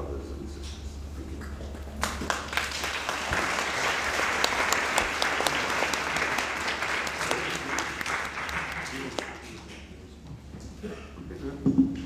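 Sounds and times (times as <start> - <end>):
audience applauding: 2.0 - 9.8.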